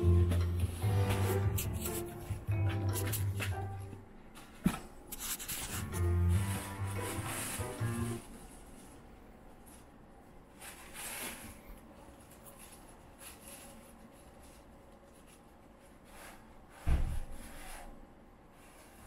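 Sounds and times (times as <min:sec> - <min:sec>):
tissue paper rustling: 0:00.7 - 0:02.3, 0:05.2 - 0:16.5.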